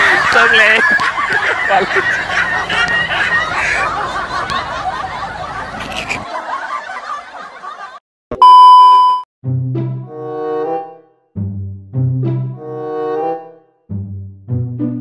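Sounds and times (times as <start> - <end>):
women laughing and giggling: 0.0 - 8.0
loud high beep: 8.3 - 9.3.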